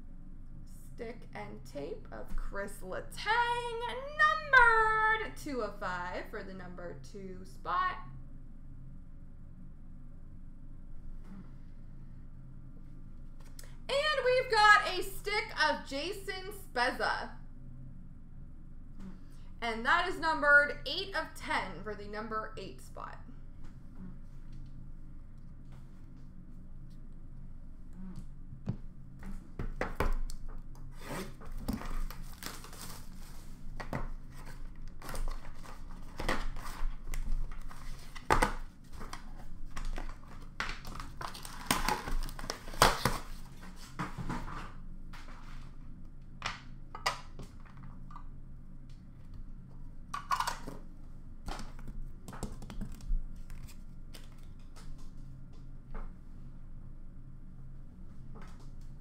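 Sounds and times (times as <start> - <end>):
cardboard and wrapping rustling: 30.9 - 45.7
cardboard tearing: 40.9 - 43.5.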